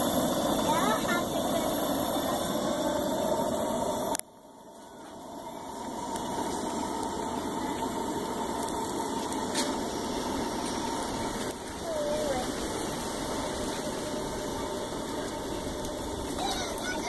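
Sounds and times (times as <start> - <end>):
camp stove burner rushing: 0.0 - 17.0.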